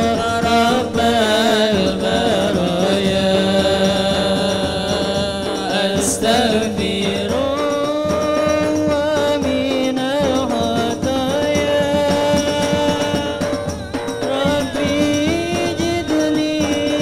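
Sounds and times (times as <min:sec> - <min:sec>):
man chanting through pa system: 0:00.0 - 0:13.6
frame drums and bass drums: 0:00.0 - 0:17.0.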